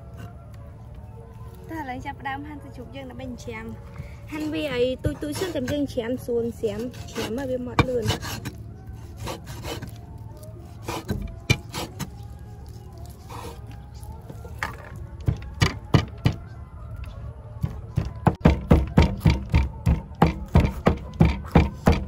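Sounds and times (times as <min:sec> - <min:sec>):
knife chopping on wooden board: 0:18.0 - 0:22.0.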